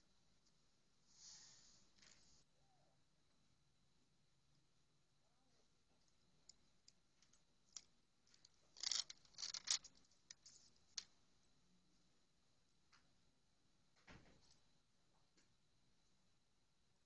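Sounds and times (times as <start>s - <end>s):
wooden bars clicking: 8.8s - 10.4s.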